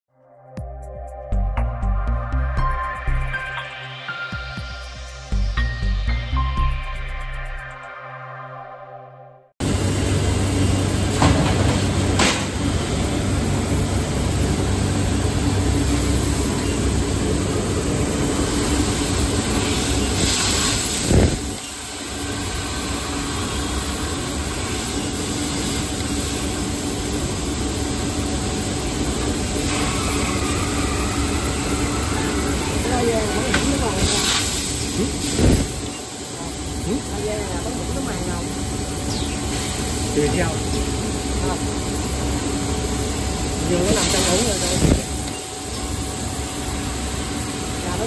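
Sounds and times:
cutting machine humming and hissing: 9.6s - 48.0s.

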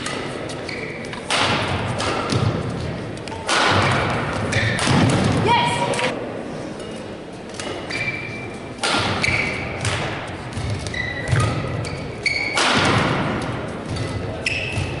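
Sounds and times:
shoes squeaking on court: 0.0s - 1.3s, 7.6s - 9.8s, 10.4s - 12.6s, 13.9s - 15.0s
rackets hitting shuttlecock: 0.0s - 6.2s, 8.7s - 15.0s.

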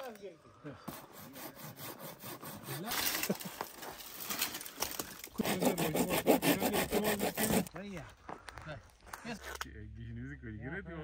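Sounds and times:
pruning saw cutting dry wood: 0.8s - 3.5s, 4.2s - 7.8s.

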